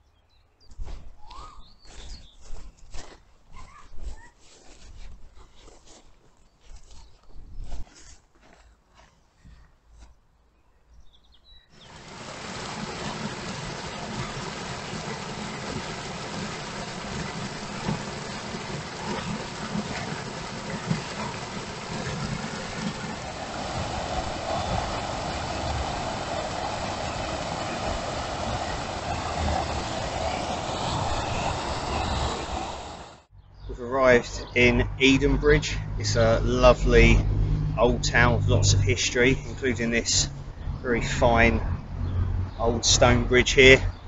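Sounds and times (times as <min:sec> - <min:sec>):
water rushing over a weir: 0:11.8 - 0:33.3.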